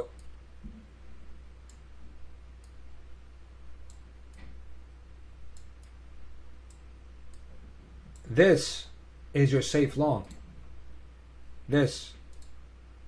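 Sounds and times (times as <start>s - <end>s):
low electrical hum: 0.0s - 13.0s
computer mouse clicks: 12.3s - 12.6s.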